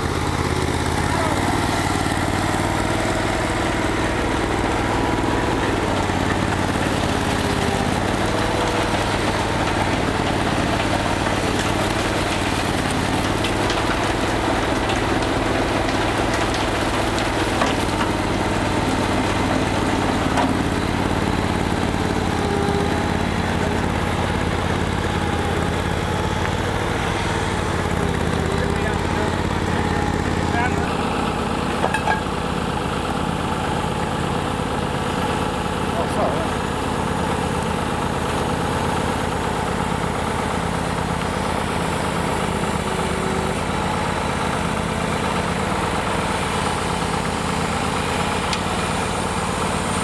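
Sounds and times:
backhoe engine running: 0.0s - 50.0s
concrete pouring from mixer: 0.0s - 50.0s
skid steer engine running: 0.0s - 50.0s.

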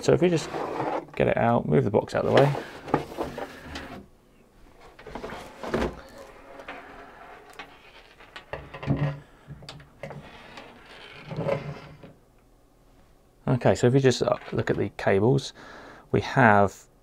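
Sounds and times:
cooler parts rustling and knocking: 2.2s - 4.1s, 4.8s - 10.2s.

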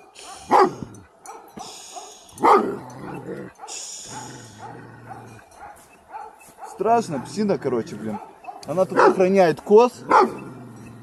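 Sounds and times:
dog barking: 0.0s - 9.3s, 10.1s - 10.4s.

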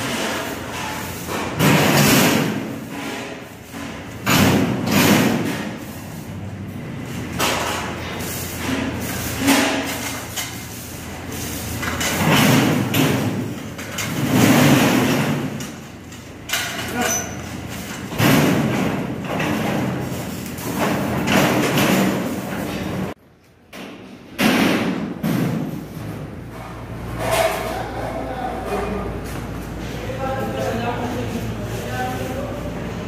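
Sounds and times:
metal thuds and bangs: 0.0s - 5.9s, 11.8s - 15.9s, 17.6s - 23.2s, 23.8s - 27.7s.

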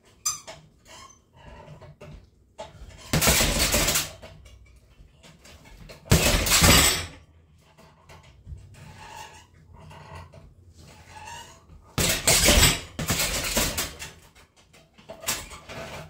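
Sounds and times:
punches into heavy bag: 6.1s - 7.1s, 12.0s - 13.8s.

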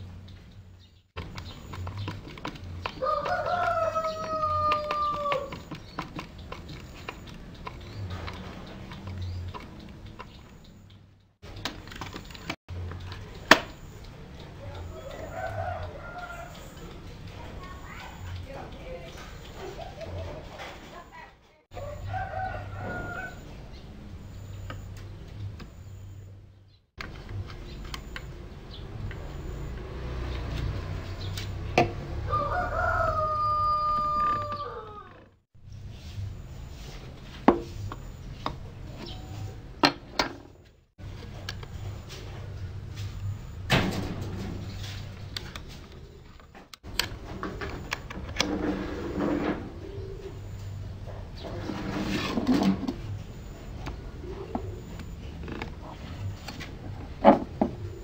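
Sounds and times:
wooden knocks and clicks: 1.2s - 13.7s
rooster crowing: 3.0s - 5.7s, 14.9s - 16.9s, 21.7s - 23.6s, 32.0s - 35.3s.

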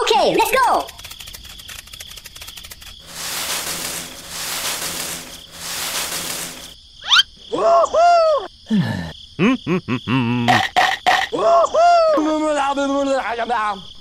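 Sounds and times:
cartoon rustling: 0.2s - 7.2s
squeaky cartoon gibberish chatter: 7.0s - 7.3s.

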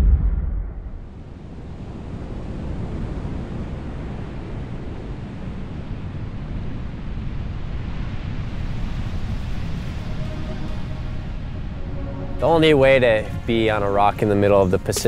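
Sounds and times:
deep low boom: 0.0s - 1.3s
wind: 0.0s - 15.0s
ocean surf rushing: 0.8s - 15.0s.

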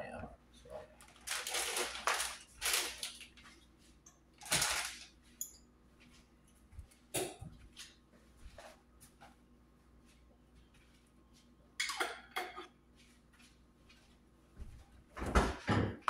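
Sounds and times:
plastic bag crinkling: 1.0s - 3.6s, 4.4s - 5.2s.

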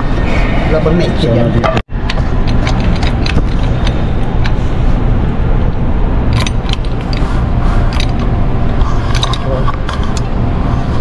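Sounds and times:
steady low rumble: 0.0s - 11.0s
wrench and chain clinking on steel: 8.9s - 10.3s.

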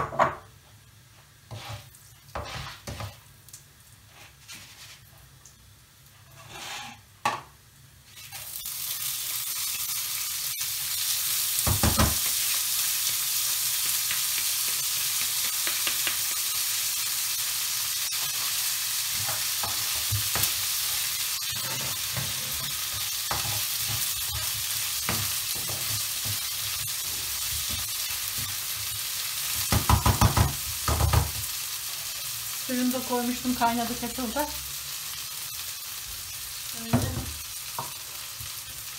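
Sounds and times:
rice sizzling in a frying pan: 0.1s - 38.9s
wooden spoon scraping a pan: 1.5s - 3.2s, 4.0s - 5.3s, 6.2s - 7.1s, 19.1s - 29.0s.

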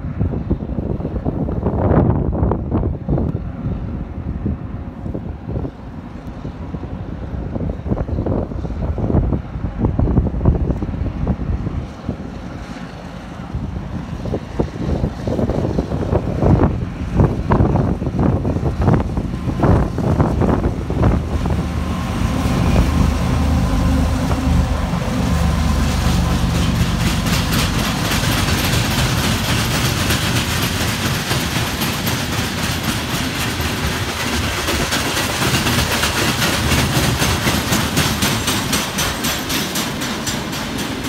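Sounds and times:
diesel locomotive engines: 0.0s - 41.0s
train wheels clickety-clack: 10.7s - 41.0s.

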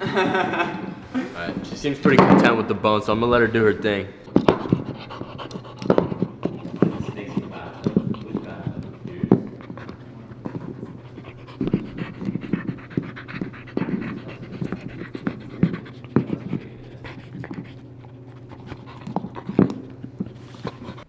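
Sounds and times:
dog breathing: 4.1s - 21.0s
dog chewing a bone: 4.2s - 21.0s.

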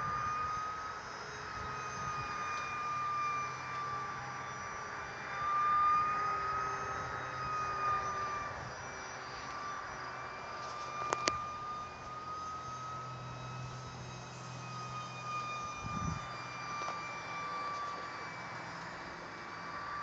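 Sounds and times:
model jet whine: 0.0s - 20.0s.

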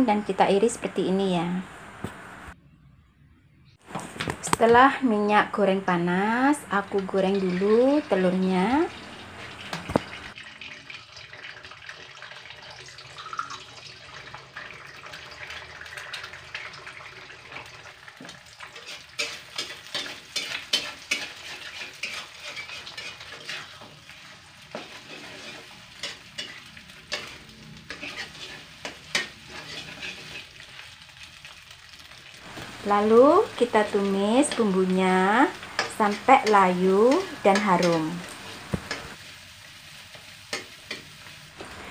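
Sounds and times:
eggs sizzling in oil: 3.8s - 41.9s
spatula scraping wok: 18.2s - 31.3s, 32.4s - 41.9s.

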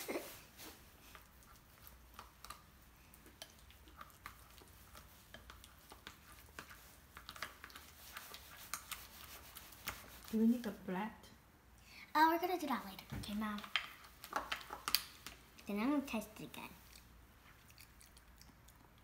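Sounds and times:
plastic spoon stirring in bowl: 0.1s - 10.9s, 12.5s - 17.9s.

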